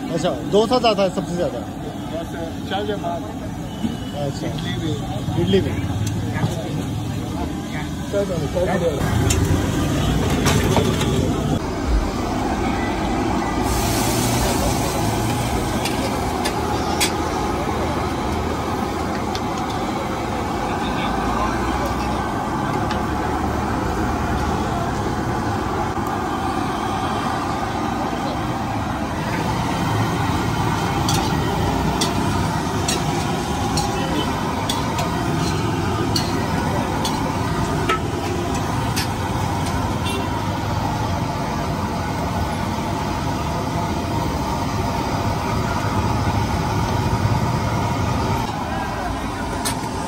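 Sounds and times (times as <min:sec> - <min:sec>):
low rumble of food stall: 0:00.0 - 0:50.0.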